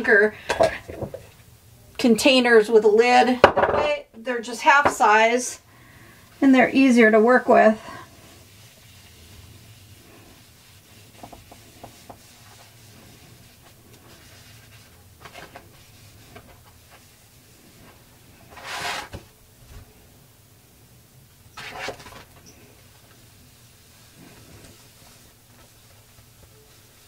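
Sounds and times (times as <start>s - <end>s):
wipe scratching on paper: 8.0s - 19.2s.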